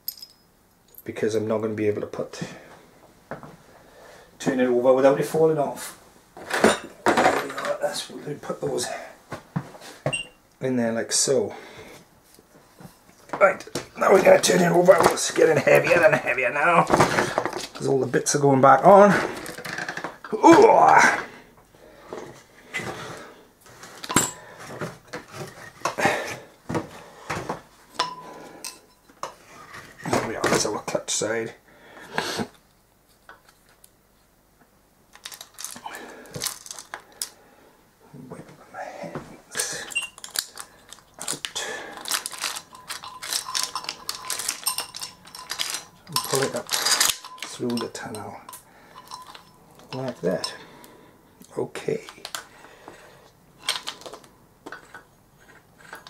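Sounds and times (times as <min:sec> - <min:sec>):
metal parts clinking and rattling: 0:00.0 - 0:01.1, 0:35.1 - 0:37.3, 0:39.9 - 0:50.6, 0:53.6 - 0:56.0.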